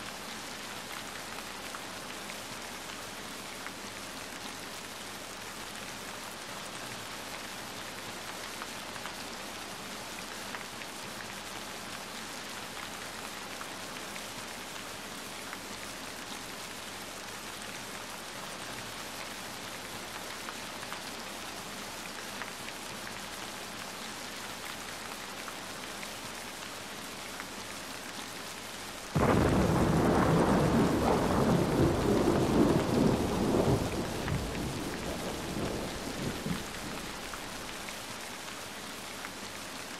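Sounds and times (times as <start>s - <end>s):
steady rain hiss: 0.0s - 39.9s
low thunder rumble: 29.2s - 37.7s.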